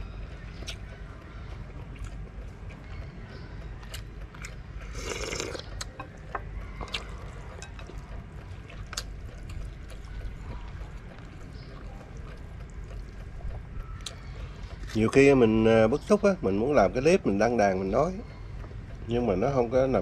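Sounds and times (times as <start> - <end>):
person slurping noodles: 4.9 - 5.6.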